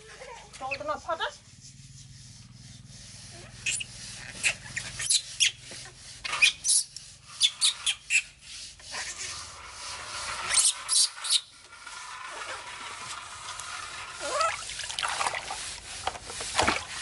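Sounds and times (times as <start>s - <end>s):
towel rubbing in brisk strokes: 0.6s - 11.0s.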